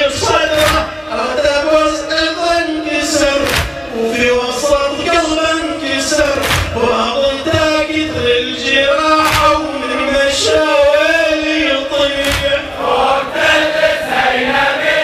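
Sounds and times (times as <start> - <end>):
men chanting together: 3.0 - 15.0.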